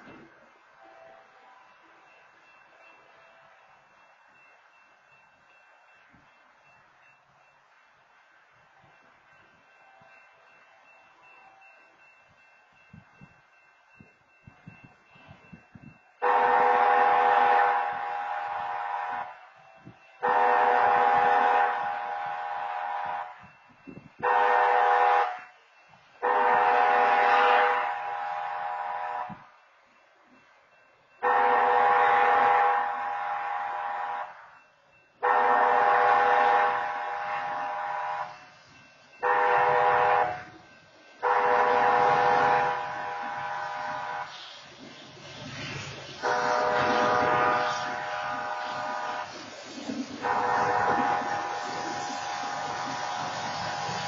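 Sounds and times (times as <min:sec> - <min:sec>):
locomotive air horn blasts: 0:16.2 - 0:23.6, 0:24.2 - 0:25.6, 0:26.2 - 0:29.5, 0:31.2 - 0:34.5, 0:35.2 - 0:38.5, 0:39.2 - 0:40.6, 0:41.2 - 0:44.5, 0:46.2 - 0:54.0.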